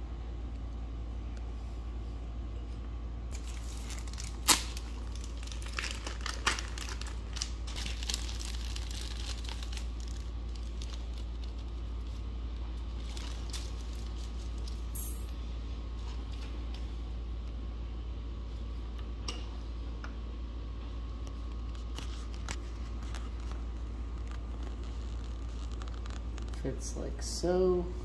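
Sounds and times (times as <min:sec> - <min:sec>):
steady low hum: 0:00.0 - 0:28.0
crinkling of rags and parts: 0:03.3 - 0:15.2, 0:21.3 - 0:26.6.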